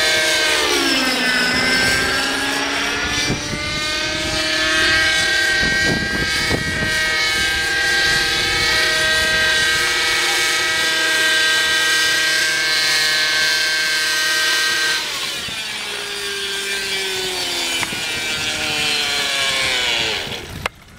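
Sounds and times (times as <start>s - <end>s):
model helicopter engine and rotor whine: 0.0s - 20.9s.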